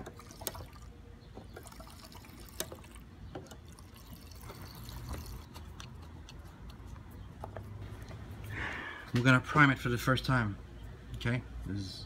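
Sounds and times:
fuel pouring into a tank: 0.0s - 5.5s.

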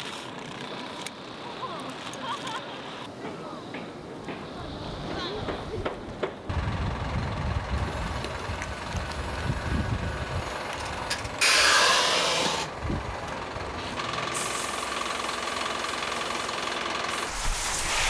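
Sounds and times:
truck engine rumbling: 4.0s - 17.9s
loud hiss: 11.4s - 12.7s, 14.3s - 15.3s, 15.9s - 18.0s.

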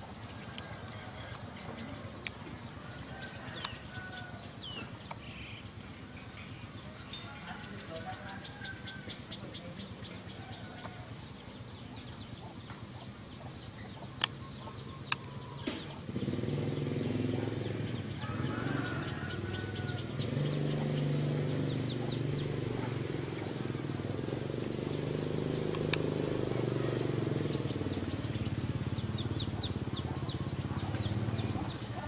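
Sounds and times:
sharp clicks: 3.6s - 3.8s, 14.2s - 14.4s, 15.0s - 15.9s, 25.6s - 26.7s
insect ticking call: 14.0s - 16.0s, 19.4s - 31.5s.

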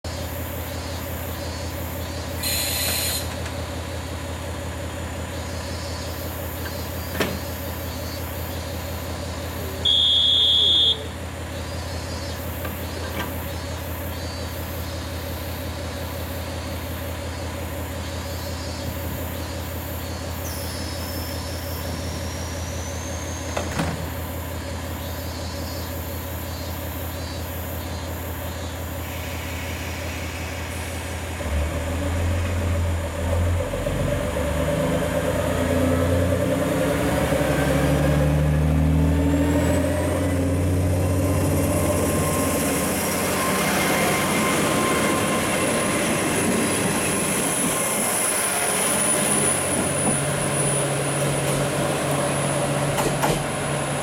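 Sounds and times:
diesel engine idling hum: 0.0s - 54.0s
loud high beep: 9.8s - 11.1s.

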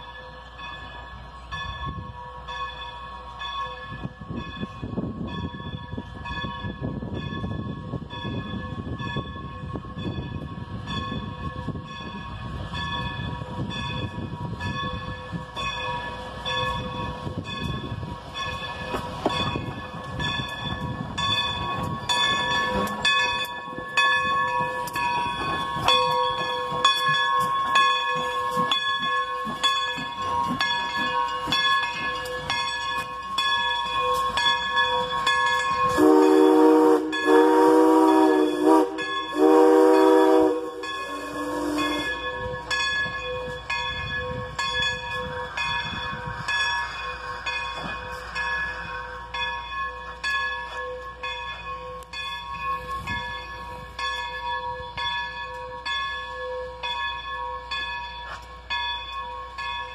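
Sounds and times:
passing train rumble: 0.0s - 59.9s
railroad crossing bell ringing: 0.0s - 59.9s
steam whistle blasts: 35.8s - 42.6s.

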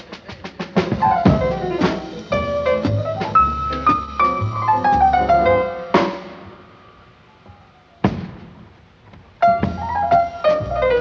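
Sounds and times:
jazz band playing: 0.0s - 6.7s, 9.4s - 11.0s
descending piano run: 1.0s - 7.8s.

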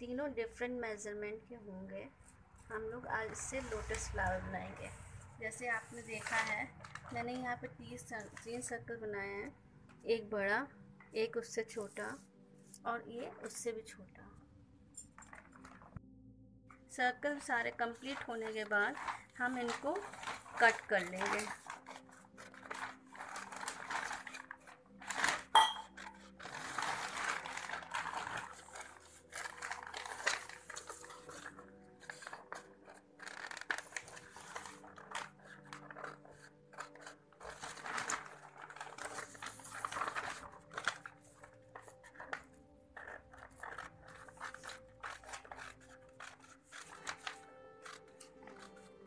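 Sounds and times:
paper rustling: 3.2s - 8.7s, 15.2s - 16.0s, 17.4s - 49.0s
scissors snipping paper: 18.1s - 49.0s.

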